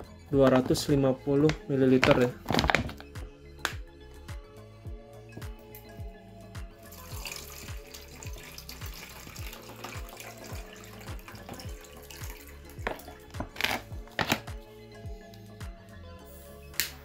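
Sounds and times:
water pouring into a cup: 6.8 - 14.5.

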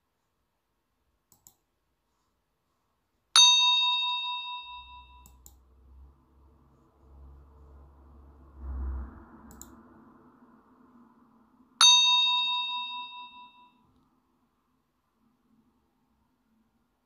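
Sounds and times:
bright bell-like ding: 3.4 - 5.3, 11.8 - 13.8.

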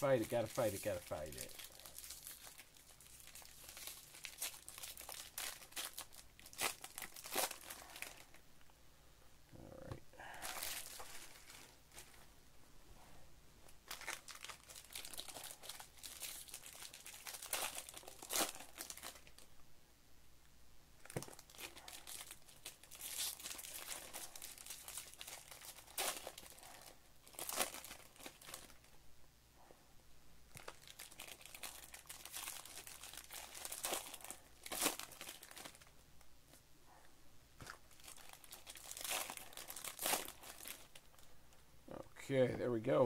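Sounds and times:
foil wrappers crinkling and tearing: 0.0 - 8.4, 10.3 - 12.2, 13.8 - 19.5, 21.0 - 28.9, 30.5 - 35.9, 37.6 - 41.3.

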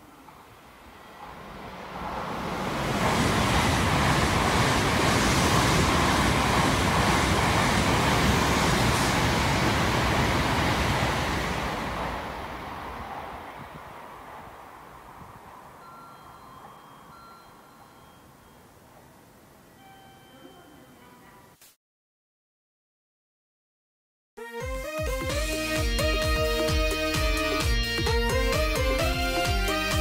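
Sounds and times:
high-speed train rushing past: 0.0 - 19.6.

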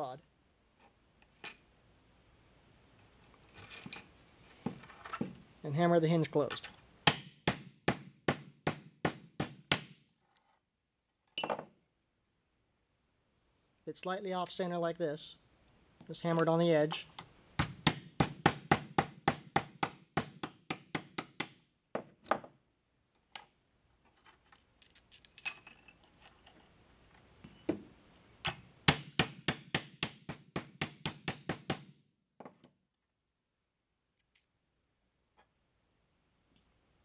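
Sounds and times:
metallic clinks of brass handled: 24.8 - 26.1.

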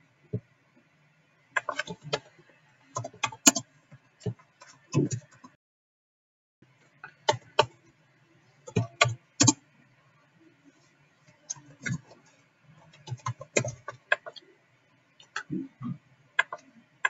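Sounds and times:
computer keyboard typing: 1.6 - 5.5, 7.1 - 7.8, 8.7 - 9.6, 11.5 - 12.2, 12.9 - 14.4, 16.4 - 16.7.

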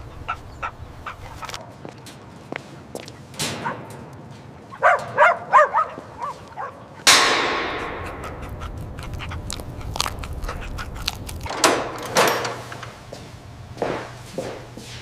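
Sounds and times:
puppies calling: 0.0 - 1.7, 4.7 - 14.1
metallic clang with echo: 7.1 - 8.5
low steady hum: 7.1 - 15.0.

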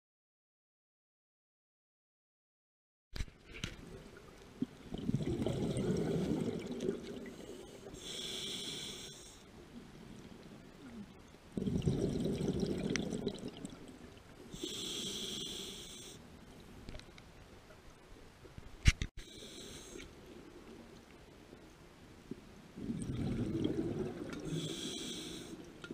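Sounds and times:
gurgle of exhaled bubbles: 4.6 - 7.5, 11.6 - 14.0, 22.8 - 24.6
hissing inhale through regulator: 7.2 - 9.5, 14.5 - 16.3, 19.2 - 20.2, 24.4 - 25.7.

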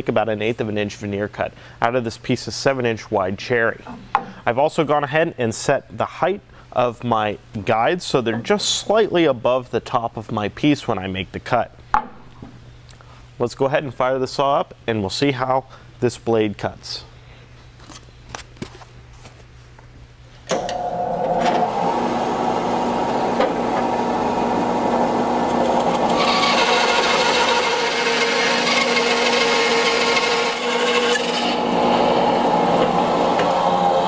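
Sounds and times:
bandsaw cutting wood: 20.5 - 34.0
bandsaw motor humming: 20.5 - 34.0.

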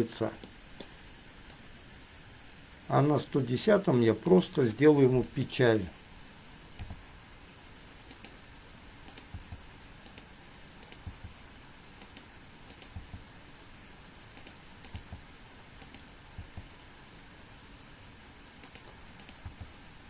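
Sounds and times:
faint hiss: 0.0 - 20.0
mouse and keyboard clicks: 8.1 - 8.4, 9.1 - 11.3, 12.0 - 13.2, 14.4 - 15.2, 15.8 - 16.1, 18.6 - 19.7.

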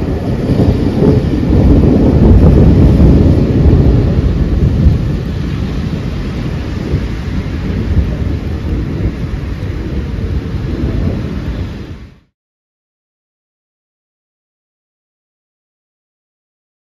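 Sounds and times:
steady rain: 0.0 - 12.3
thunder rumbling: 0.0 - 12.3.

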